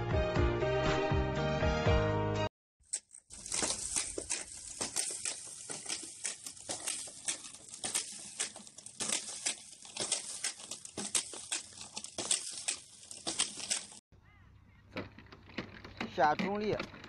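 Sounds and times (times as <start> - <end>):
manual seeder clicking and rattling: 2.8 - 14.0, 14.9 - 17.0.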